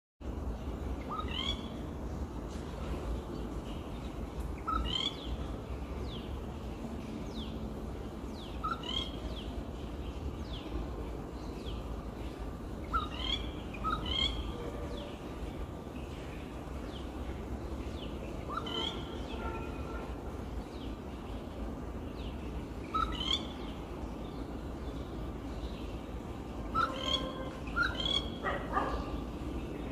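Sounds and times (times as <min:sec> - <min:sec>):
bird calling ringing notes: 0:26.7 - 0:29.1.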